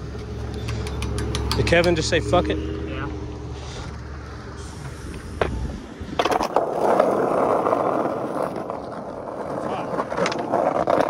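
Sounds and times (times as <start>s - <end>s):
skateboard wheels rolling on concrete: 0.0s - 2.5s, 3.4s - 11.0s
low traffic rumble: 0.0s - 11.0s
skateboard clacks: 0.4s - 2.1s, 6.2s - 11.0s.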